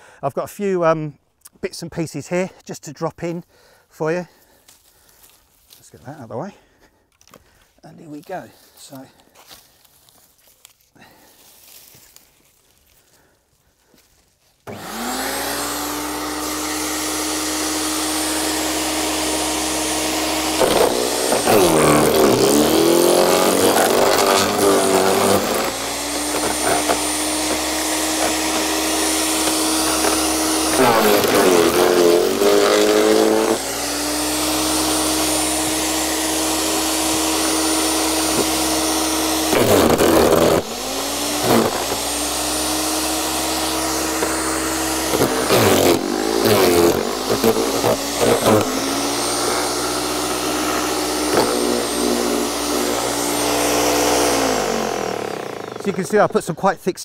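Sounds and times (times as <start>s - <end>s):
stems crunching in shredder: 7.2s - 56.5s
garden shredder motor hum: 14.6s - 56.5s.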